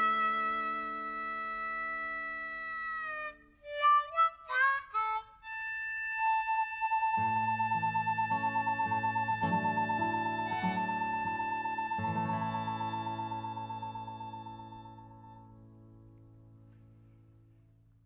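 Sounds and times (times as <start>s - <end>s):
high note with tremolo: 0.0s - 1.9s.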